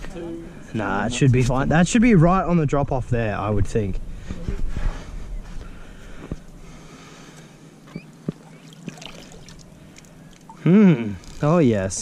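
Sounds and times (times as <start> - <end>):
water sloshing among rocks: 8.2 - 10.6.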